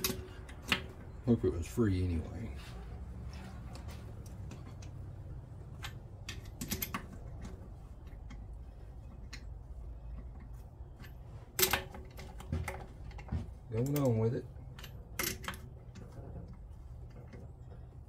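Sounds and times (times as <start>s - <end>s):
metal tools clinking: 0.0s - 0.9s
steady low hum: 0.0s - 18.0s.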